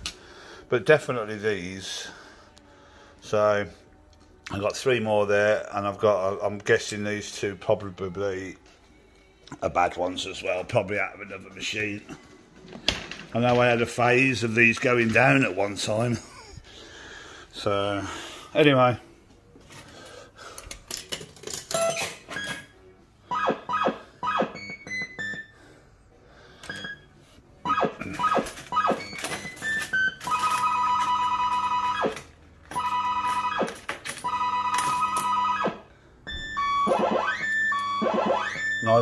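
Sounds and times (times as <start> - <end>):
fruit machine bleeps: 26.7 - 27.1, 34.3 - 39.0.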